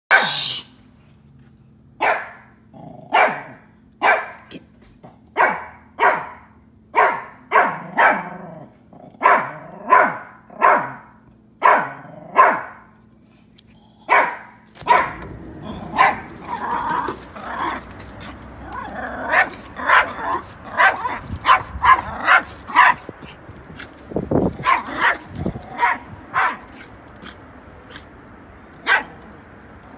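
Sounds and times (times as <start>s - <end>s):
dog barking: 0.1s - 0.4s, 2.0s - 2.5s, 3.1s - 4.5s, 5.3s - 8.4s, 9.2s - 12.8s, 14.1s - 15.2s, 15.9s - 17.8s, 18.8s - 23.1s, 24.6s - 26.8s, 28.8s - 29.2s.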